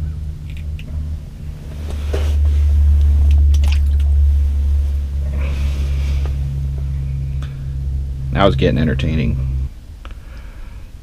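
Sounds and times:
steady low rumble: 0:00.0 - 0:11.0
clothing and gear rustling: 0:01.6 - 0:02.7.

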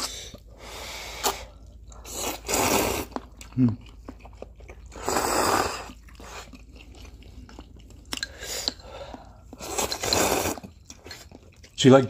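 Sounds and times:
slurp of noodles: 0:01.1 - 0:03.2, 0:05.0 - 0:06.5, 0:09.6 - 0:10.8
chewing with clicks and smacks: 0:01.2 - 0:12.0.

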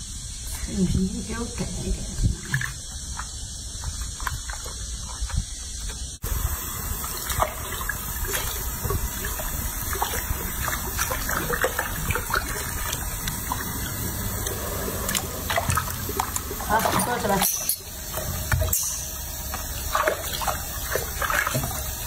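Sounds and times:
water splashing: 0:01.6 - 0:22.0
tap water pouring into basin: 0:06.9 - 0:22.0.

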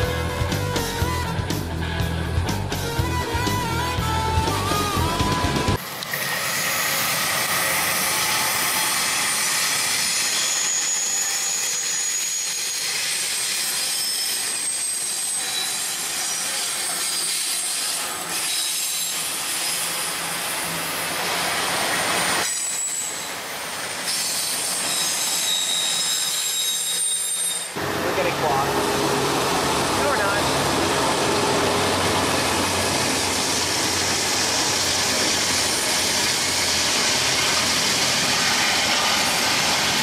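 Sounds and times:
train rolling over rails: 0:04.6 - 0:40.0
wheels squealing: 0:06.5 - 0:20.8, 0:22.0 - 0:27.8.

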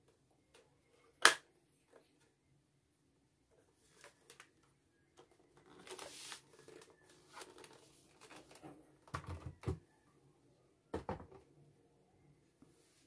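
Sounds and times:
light plastic knocks and thumps: 0:08.5 - 0:09.9, 0:10.9 - 0:11.5.

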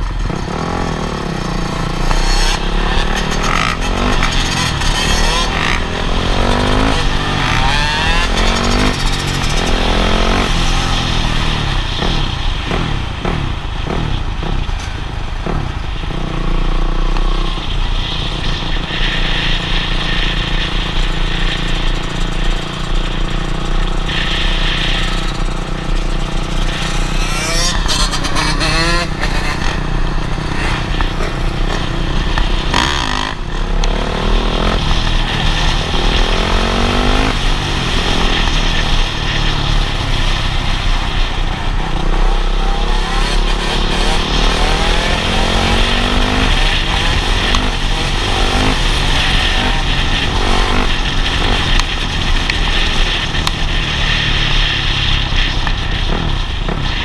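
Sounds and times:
dirt bike engines revving: 0:00.0 - 0:57.0
wind rumble on microphone: 0:44.0 - 0:57.0.

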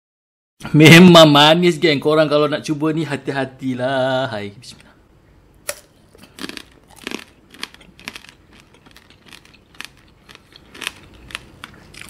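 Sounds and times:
chewing crunchy candy: 0:06.1 - 0:12.0.

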